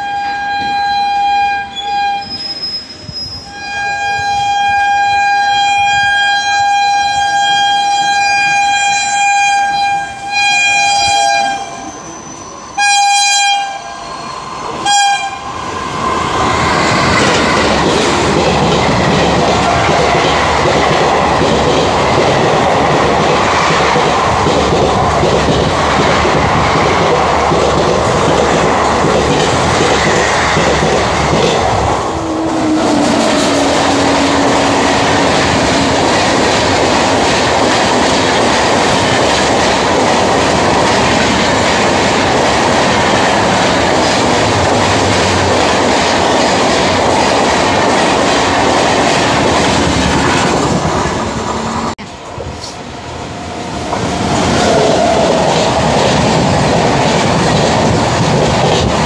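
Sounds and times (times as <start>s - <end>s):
locomotive horn blasts: 0.0s - 2.4s, 3.5s - 11.9s, 12.8s - 14.0s, 14.8s - 15.5s
train wheels rushing on track: 0.0s - 59.0s.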